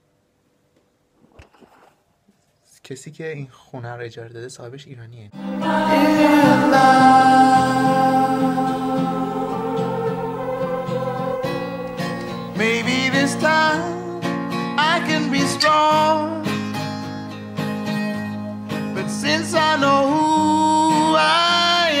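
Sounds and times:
song with plucked guitar and singing: 5.4 - 16.7, 18.7 - 22.0.

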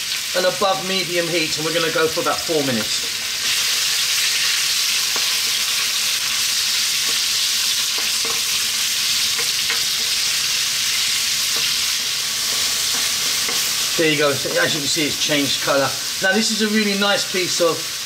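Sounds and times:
meat sizzling in a wok: 0.0 - 18.0
wooden spatula tapping and scraping: 7.0 - 7.3, 7.9 - 8.6, 9.3 - 10.2, 11.5 - 13.8.

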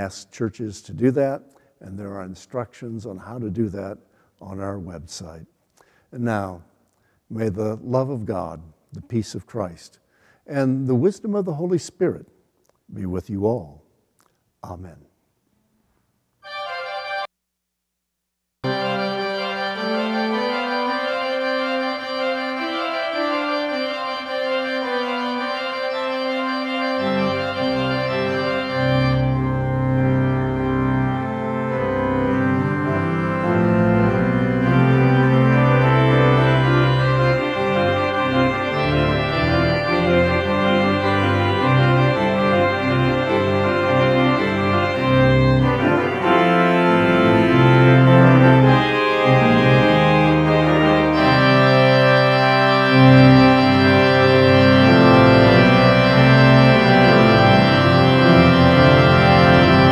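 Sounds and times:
organ playing held chords: 16.4 - 17.3, 18.6 - 59.9.

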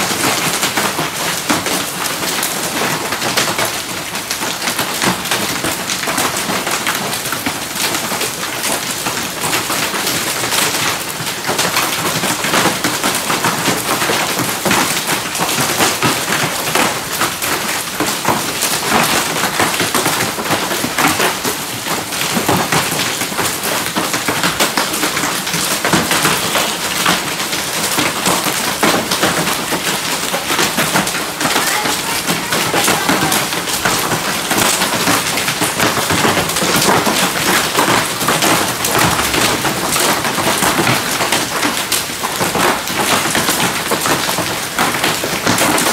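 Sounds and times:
hailstones ticking on stone: 0.0 - 45.9
heavy rain hissing: 24.9 - 41.2.

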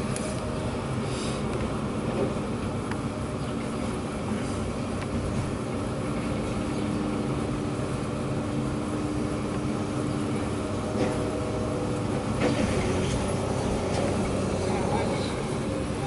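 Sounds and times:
excavator diesel engine running: 0.0 - 16.0.

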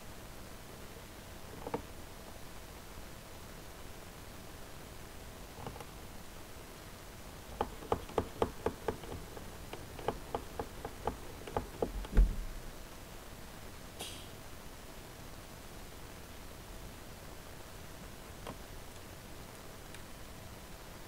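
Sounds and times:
heavier thump: 11.8 - 12.7
sharp sniff: 14.0 - 14.4.

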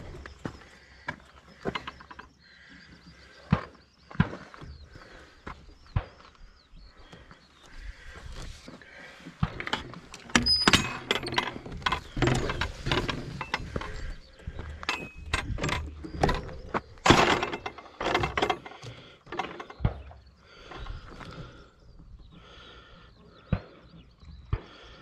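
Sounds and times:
bike clattering over rough track: 9.4 - 21.7
bike and chain rattling: 9.8 - 19.8.

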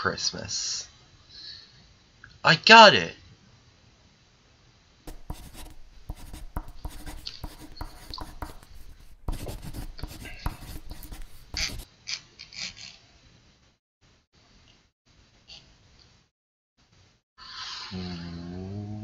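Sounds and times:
pencil scratching on paper: 5.1 - 11.9.

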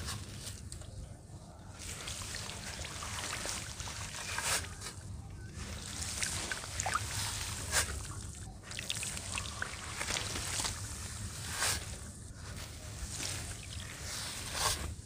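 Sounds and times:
dirt crackling and crumbling: 1.8 - 15.0.

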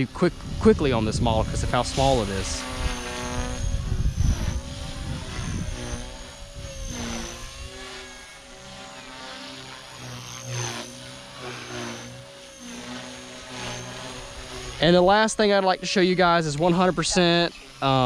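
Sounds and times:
rc helicopter motor whine: 0.0 - 18.0.

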